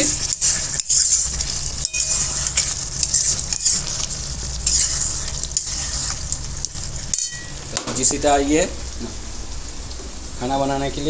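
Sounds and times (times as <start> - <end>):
metal spoon scraping a pot: 0.0 - 6.3, 7.1 - 7.5
curry sizzling in a pot: 0.0 - 9.8.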